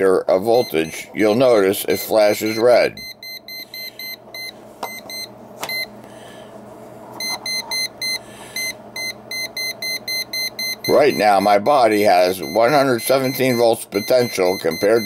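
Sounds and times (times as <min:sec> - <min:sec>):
voltage tester beeping rapidly: 0:07.2 - 0:15.0.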